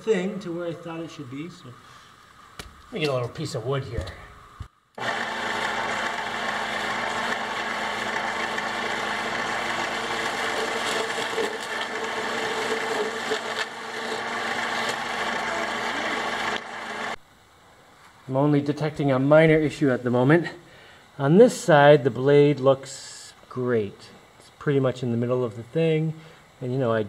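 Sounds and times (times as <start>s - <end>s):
bandsaw running: 5.0s - 17.2s.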